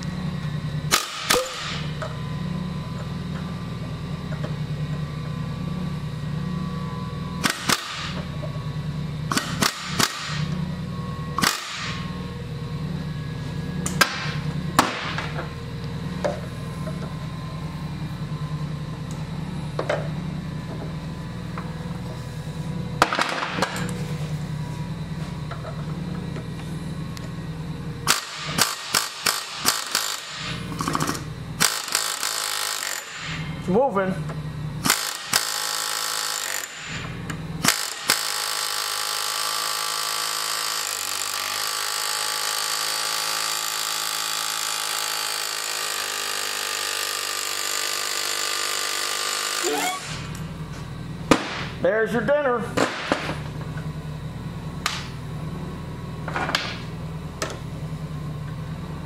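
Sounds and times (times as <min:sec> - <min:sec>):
steady low hum: 0:00.0 - 0:31.8, 0:33.2 - 0:35.0, 0:49.6 - 0:59.0.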